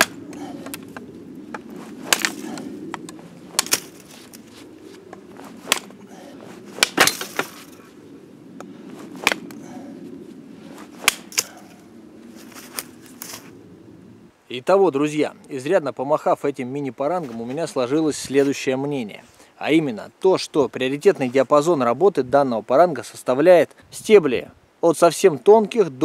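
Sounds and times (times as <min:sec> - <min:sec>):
blade chopping wood: 0:00.0 - 0:00.8, 0:01.6 - 0:02.7, 0:03.5 - 0:04.3, 0:05.6 - 0:05.9, 0:06.8 - 0:07.8, 0:09.2 - 0:09.6, 0:11.0 - 0:11.6.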